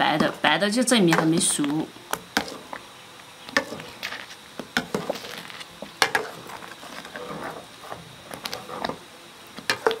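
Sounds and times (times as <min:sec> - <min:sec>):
metal spoon stirring in pot: 0:01.1 - 0:02.8, 0:03.5 - 0:09.0, 0:09.6 - 0:10.0.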